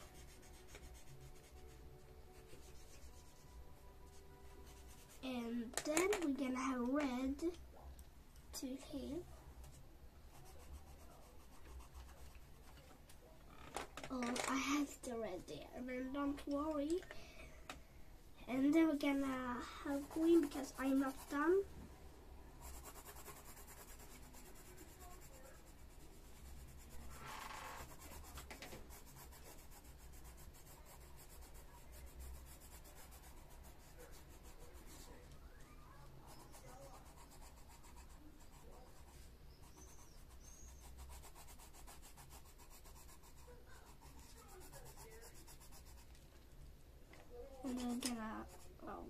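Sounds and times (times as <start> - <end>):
pencil scratching on paper: 0.0 - 7.5, 10.3 - 12.8, 18.6 - 21.7, 22.6 - 46.1, 47.6 - 49.0.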